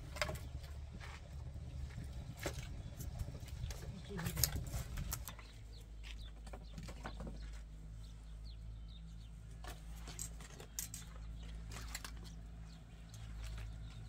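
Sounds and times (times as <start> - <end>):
steady low rumble: 0.0 - 6.3.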